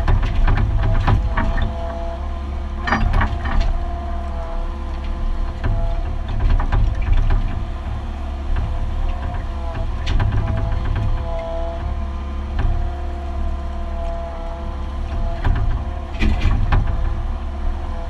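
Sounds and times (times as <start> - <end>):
diesel engine running under load: 0.0 - 18.0
excavator bucket clunks and knocks: 0.0 - 18.0
hydraulics working: 0.0 - 18.0.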